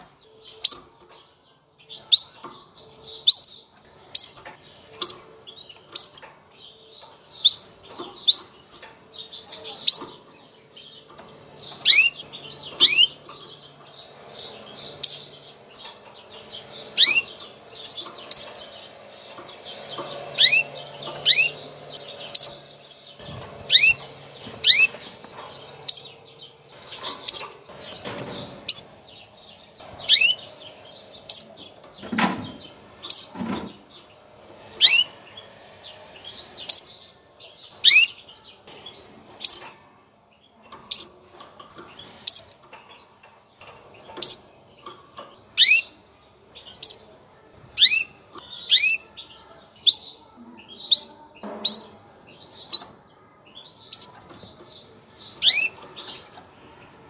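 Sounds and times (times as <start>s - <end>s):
canary chirping: 0.0s - 57.0s.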